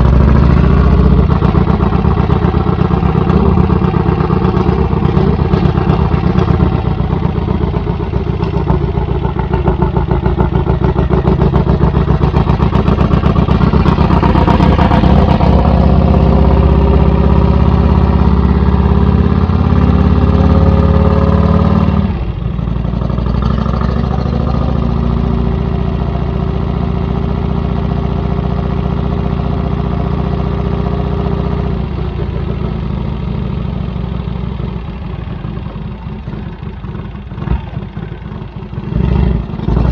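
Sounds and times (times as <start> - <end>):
motorcycle engine exhaust beat: 0.0 - 39.9.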